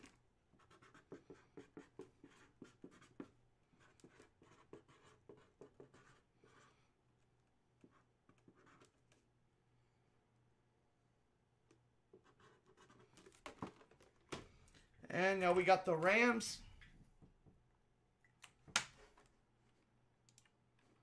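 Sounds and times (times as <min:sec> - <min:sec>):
marker pen writing on plastic: 0:00.0 - 0:06.7, 0:07.8 - 0:09.2, 0:12.1 - 0:13.4.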